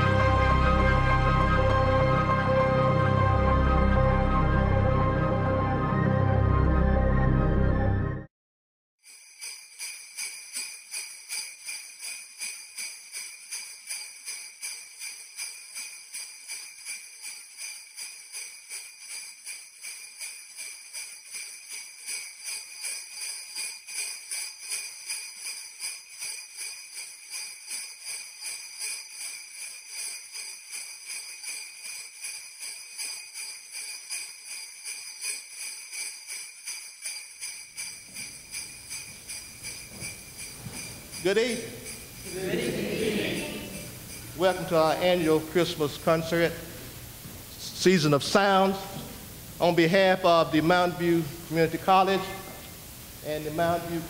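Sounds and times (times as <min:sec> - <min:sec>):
sleigh bells shaking: 0:00.0 - 0:04.4, 0:09.0 - 0:46.9, 0:47.5 - 0:52.4, 0:53.0 - 0:54.0
low hall ambience: 0:00.0 - 0:08.3, 0:37.9 - 0:54.0.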